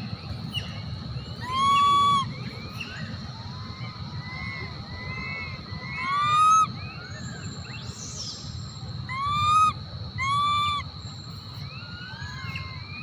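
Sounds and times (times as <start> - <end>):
young monkey crying: 1.4 - 2.3, 4.2 - 6.7, 9.1 - 10.9.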